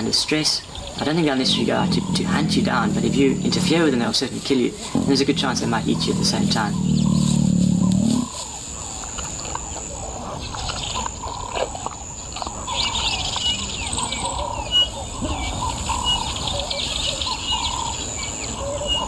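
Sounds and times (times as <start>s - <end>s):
birds chirping and calling: 0.0s - 11.6s, 12.2s - 19.0s
low background hum: 0.9s - 8.4s.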